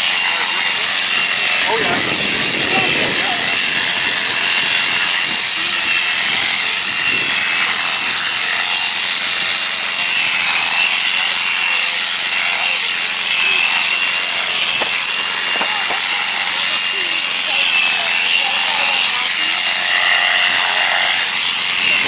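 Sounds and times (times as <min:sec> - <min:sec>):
electric shears buzzing: 0:00.0 - 0:22.0.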